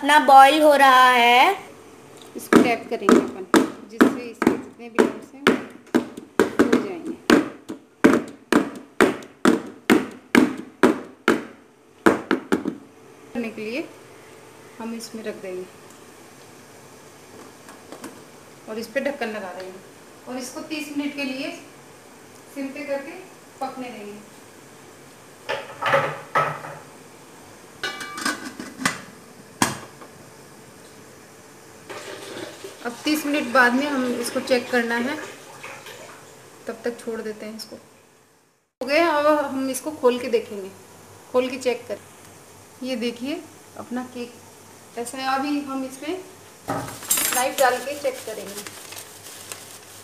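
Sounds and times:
cake pan tapping on hard surface: 0:02.5 - 0:12.8
metal lid clanking on pot: 0:27.8 - 0:29.0.

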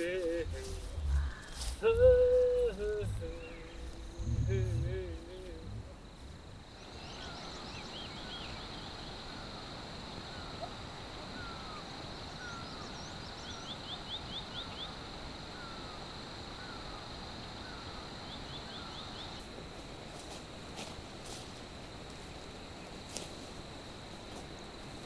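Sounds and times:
birds chirping: 0:00.0 - 0:09.6
high insect drone: 0:00.0 - 0:25.0.

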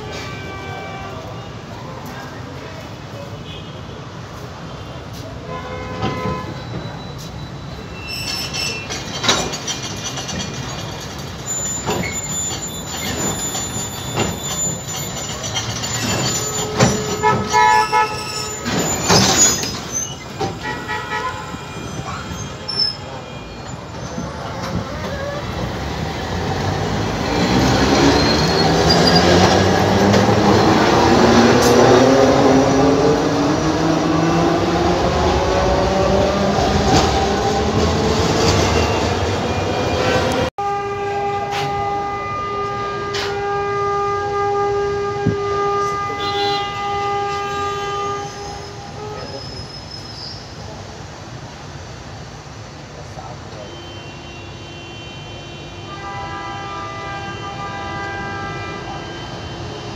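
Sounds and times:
tram clanking: 0:04.2 - 0:53.7
thin wheel squeal: 0:06.6 - 0:09.0.

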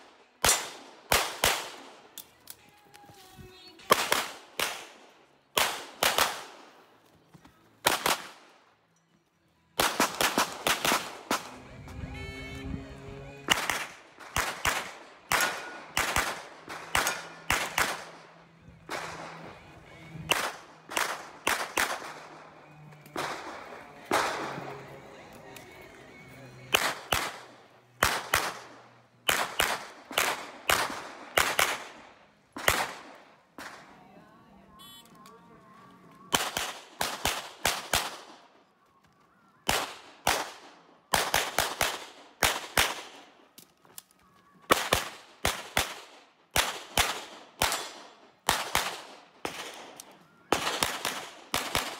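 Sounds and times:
pistol shots: 0:00.4 - 0:02.2, 0:03.9 - 0:06.8, 0:07.8 - 0:08.6, 0:09.8 - 0:11.5, 0:13.5 - 0:22.5, 0:23.1 - 0:24.7, 0:26.7 - 0:33.9, 0:36.3 - 0:38.5, 0:39.6 - 0:43.4, 0:44.7 - 0:51.9.

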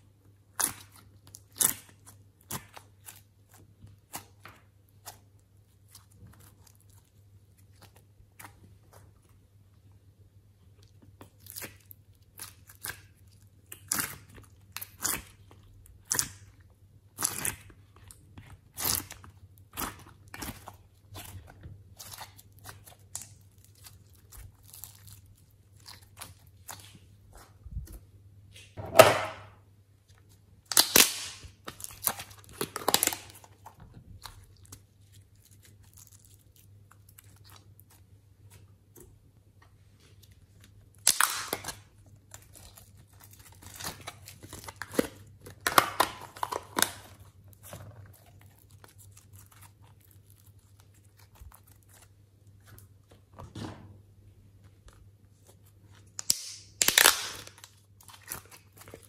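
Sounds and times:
plastic containers crinkling: 0:41.0 - 0:53.4, 0:56.8 - 0:59.0.

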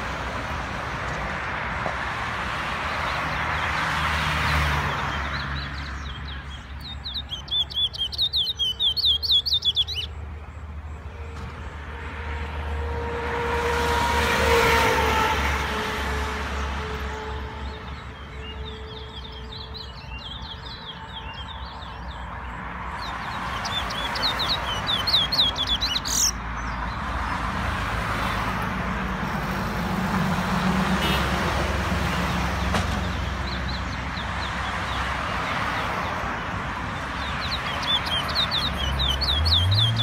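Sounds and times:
songbird rapid high chirping: 0:04.9 - 0:10.8, 0:16.6 - 0:27.4, 0:36.9 - 0:40.0.

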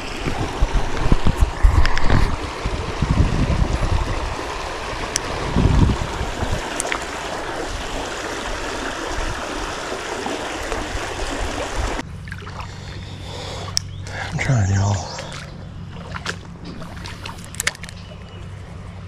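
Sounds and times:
low rumbles on microphone: 0:00.0 - 0:06.7
low hum: 0:00.0 - 0:19.0
stream water flowing: 0:00.0 - 0:19.0.

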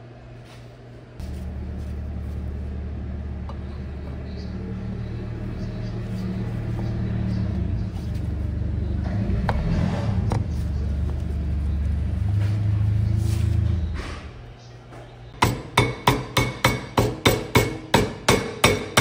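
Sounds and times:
low motor rumble: 0:01.2 - 0:15.4.

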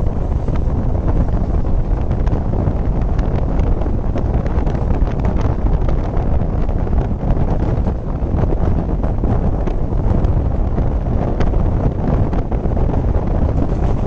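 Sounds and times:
train rumble: 0:00.0 - 0:14.0
wind buffeting microphone: 0:00.0 - 0:14.0.

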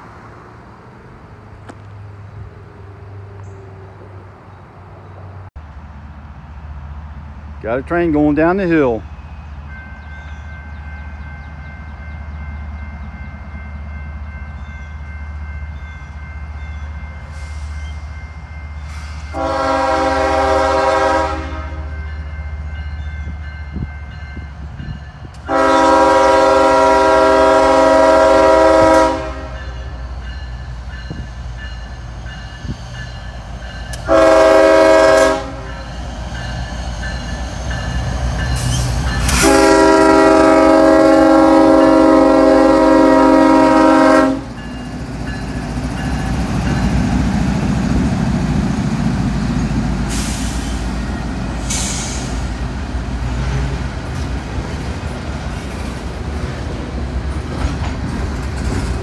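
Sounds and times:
locomotive air horn blasts: 0:19.3 - 0:22.0, 0:25.4 - 0:29.8, 0:33.9 - 0:35.8, 0:39.2 - 0:44.6.

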